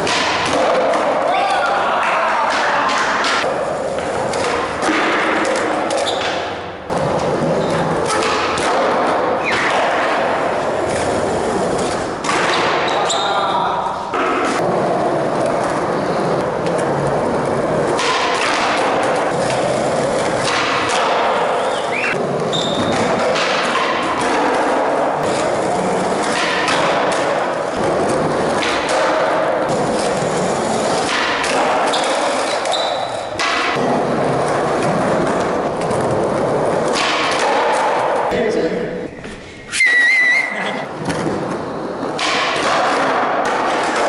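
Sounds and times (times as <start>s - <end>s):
skateboard wheels rolling on concrete: 0.0s - 38.3s, 39.2s - 44.0s.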